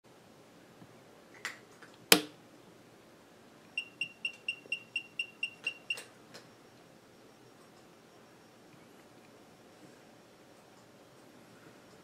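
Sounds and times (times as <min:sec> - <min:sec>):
digital readout beeping: 0:03.7 - 0:08.6.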